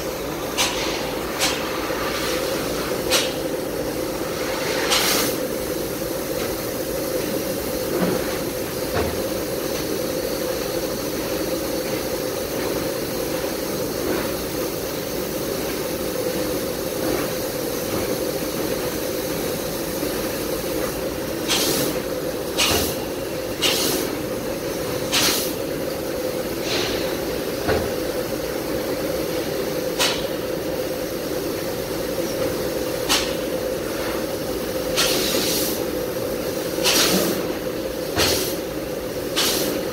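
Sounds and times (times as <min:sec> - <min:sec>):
machine hum with hiss: 0:00.0 - 0:39.9
short sharp hisses: 0:23.6 - 0:24.1.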